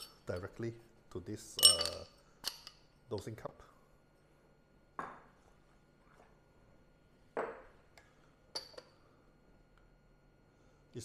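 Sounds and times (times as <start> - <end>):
metallic clink with short ring: 1.6 - 2.1.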